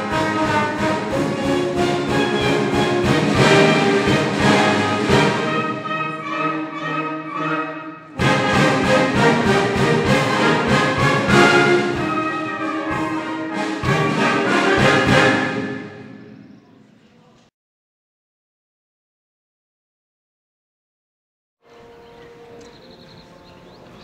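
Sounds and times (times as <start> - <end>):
wind band playing: 0.0 - 16.6.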